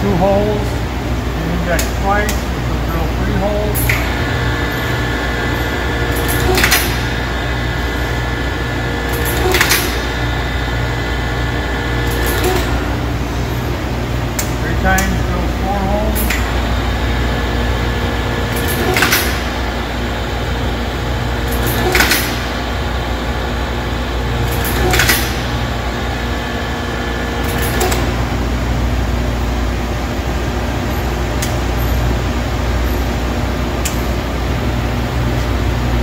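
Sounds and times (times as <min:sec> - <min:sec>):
low steady hum: 0:00.0 - 0:36.0
drilling machine motor hum: 0:02.4 - 0:28.7.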